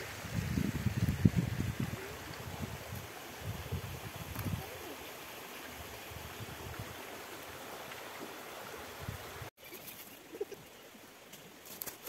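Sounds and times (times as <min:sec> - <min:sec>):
flowing water rushing: 0:00.0 - 0:09.5.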